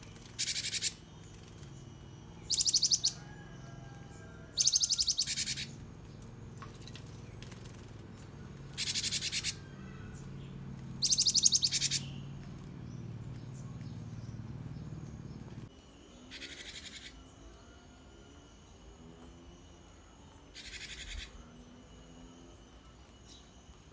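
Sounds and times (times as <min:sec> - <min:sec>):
low steady hum: 0:00.0 - 0:23.9
bird calling in high bursts: 0:00.4 - 0:01.1, 0:02.4 - 0:03.3, 0:04.5 - 0:05.8, 0:08.7 - 0:10.0, 0:11.0 - 0:12.2.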